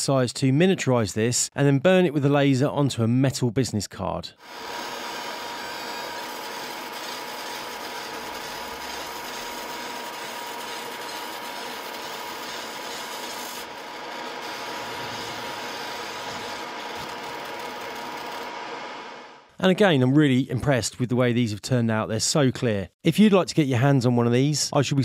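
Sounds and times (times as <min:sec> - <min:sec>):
laser engraver hissing: 0:04.4 - 0:18.6
constant whine: 0:04.6 - 0:19.5.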